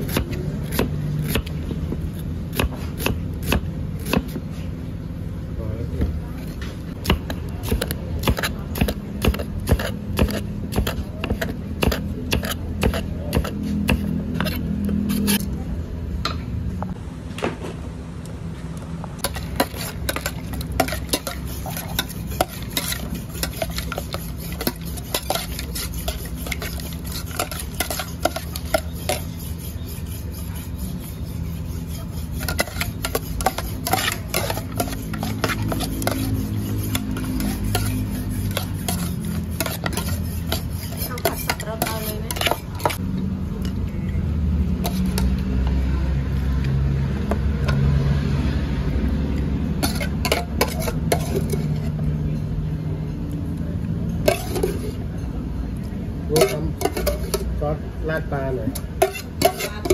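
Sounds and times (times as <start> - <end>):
steady low hum: 0.0 - 45.2
metal spatula scraping a wok: 7.0 - 15.5, 19.2 - 43.0, 44.8 - 45.4, 49.7 - 52.0, 54.2 - 55.2, 56.3 - 57.6, 58.2 - 59.9.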